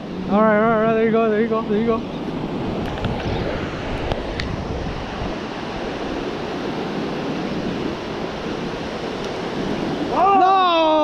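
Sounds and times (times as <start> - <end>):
surf breaking on beach: 0.0 - 11.0
wind on microphone: 0.0 - 11.0.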